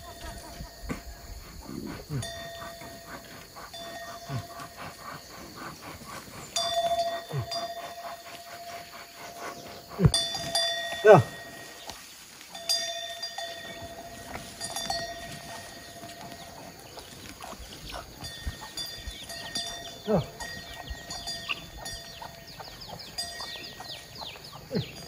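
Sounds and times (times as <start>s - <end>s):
livestock bell clanking: 0.0s - 25.0s
chicks peeping: 15.2s - 19.8s, 20.6s - 25.0s.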